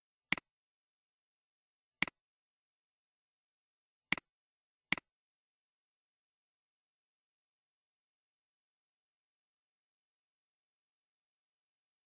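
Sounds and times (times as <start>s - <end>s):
computer mouse clicks: 0.3s - 0.5s.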